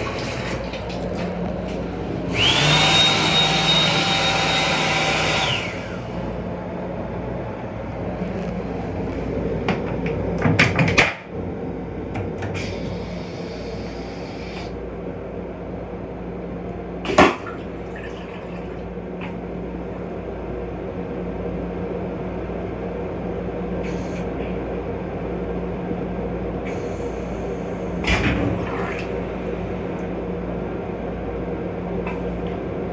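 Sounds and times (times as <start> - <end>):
electric railcar hum: 5.4 - 17.0, 19.0 - 28.1, 29.2 - 32.9.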